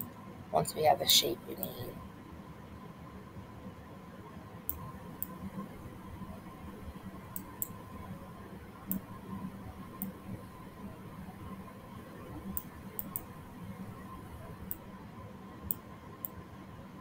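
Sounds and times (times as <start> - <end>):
faint electrical hum: 0.0 - 17.0
computer mouse clicking: 4.7 - 5.4, 7.3 - 7.8, 12.5 - 13.3, 14.7 - 14.9.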